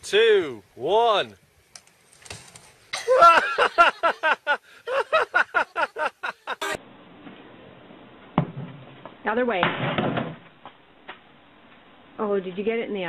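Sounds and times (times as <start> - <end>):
faint hiss: 0.0 - 6.8
person laughing loudly: 3.0 - 6.8.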